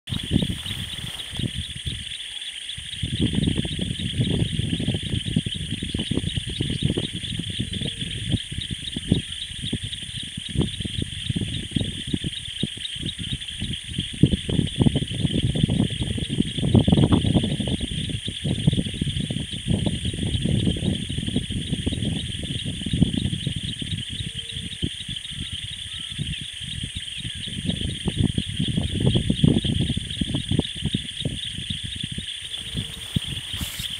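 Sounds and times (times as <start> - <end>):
low rumbling and crackling noise: 0.1 - 2.2, 31.4 - 33.9
high insect chorus trilling: 0.1 - 33.9.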